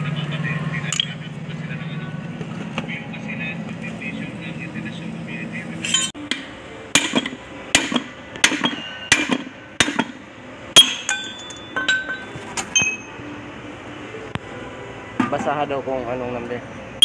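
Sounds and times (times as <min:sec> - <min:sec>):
ringing metal: 0:00.9 - 0:01.2, 0:05.8 - 0:06.2, 0:08.4 - 0:09.4, 0:10.8 - 0:13.2
hammer striking steel drift: 0:05.8 - 0:13.1.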